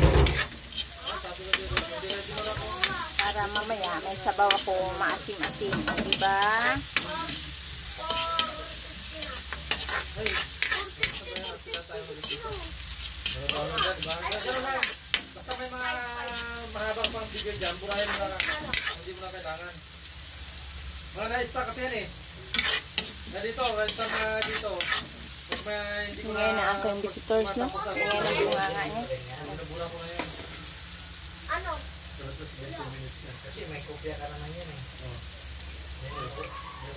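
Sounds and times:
metal spatula scraping wok: 0:00.0 - 0:19.4, 0:22.4 - 0:30.8
food sizzling in oil: 0:00.0 - 0:36.9.

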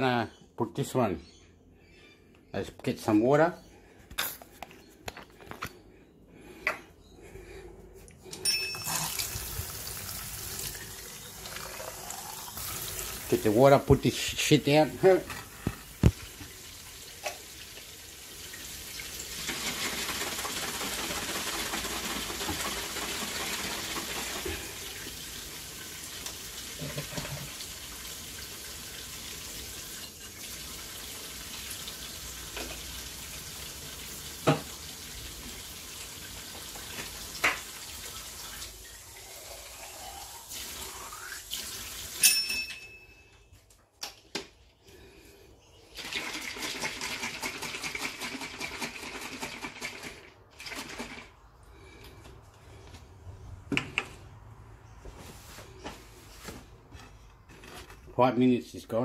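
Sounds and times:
water running from tap: 0:08.8 - 0:13.9, 0:15.7 - 0:42.3.

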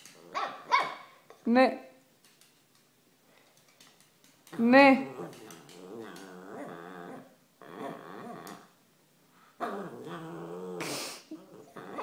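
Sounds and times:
dog growling playfully: 0:04.5 - 0:08.8, 0:09.6 - 0:12.0.

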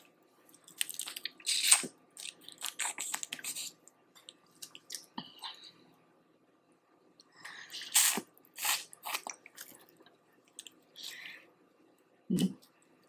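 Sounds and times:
wet chewing sounds: 0:00.5 - 0:05.6, 0:07.7 - 0:11.3.

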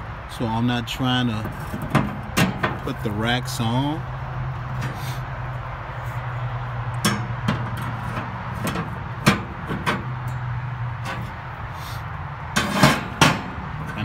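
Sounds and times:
grill grates clanking: 0:01.3 - 0:03.2, 0:06.9 - 0:11.4, 0:12.5 - 0:14.0.

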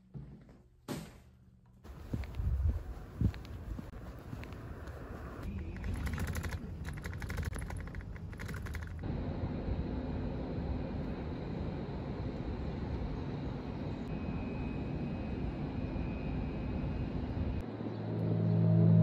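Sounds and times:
background hum with low drone: 0:00.0 - 0:19.0
fast run of clicks: 0:05.4 - 0:09.0.

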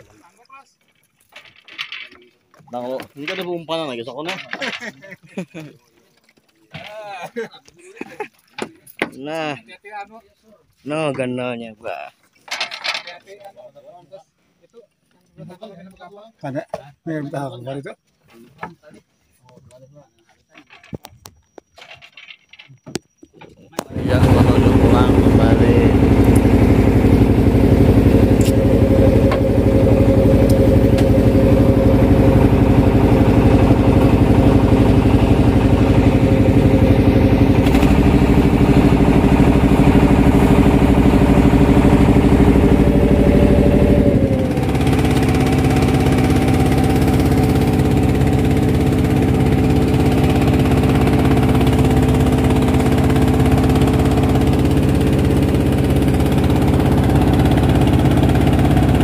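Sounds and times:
boat engine running: 0:00.0 - 0:07.2, 0:20.1 - 0:59.0.

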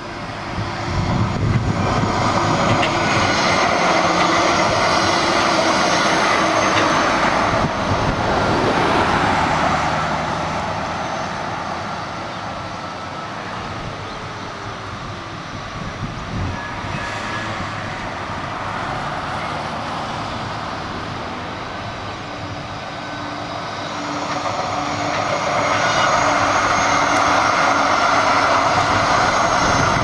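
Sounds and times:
tram passing: 0:00.0 - 0:30.0.

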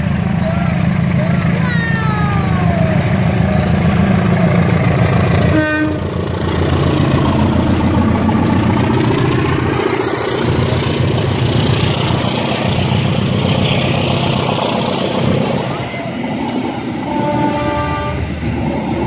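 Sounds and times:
diesel locomotive engine running: 0:00.0 - 0:19.0
train cars rolling past: 0:00.0 - 0:19.0
train horn toot: 0:05.5 - 0:06.1, 0:17.0 - 0:18.4.

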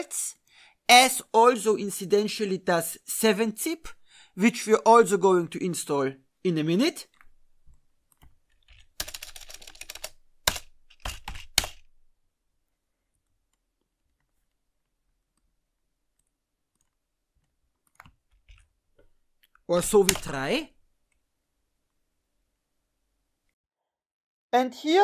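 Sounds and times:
typing on computer keyboard: 0:08.1 - 0:11.9, 0:17.8 - 0:18.7, 0:19.4 - 0:20.4.

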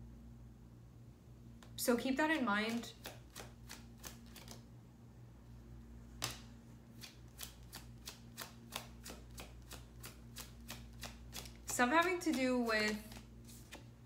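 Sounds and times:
cards being shuffled: 0:02.7 - 0:04.6, 0:06.2 - 0:14.0.

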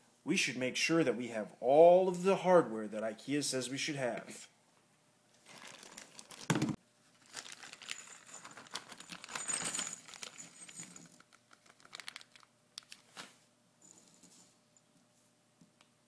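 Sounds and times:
plastic bag crinkling: 0:05.4 - 0:13.1
small parts clicking: 0:07.4 - 0:13.0.

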